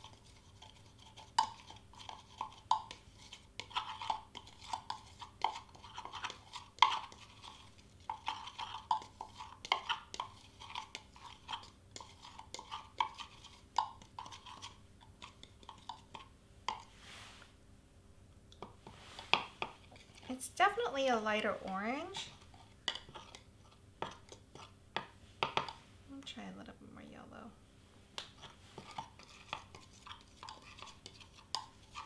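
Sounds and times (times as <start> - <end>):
metal spoon scraping cup: 28.4 - 32.0.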